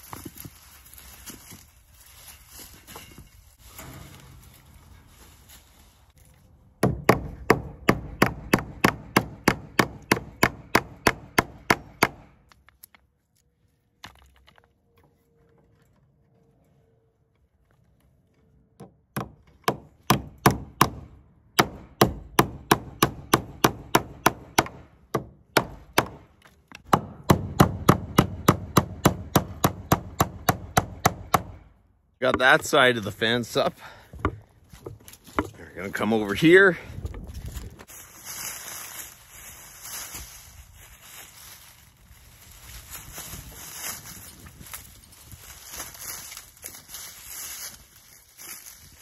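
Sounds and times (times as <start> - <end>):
hammer blows on staples: 6.8 - 12.4, 18.8 - 31.6.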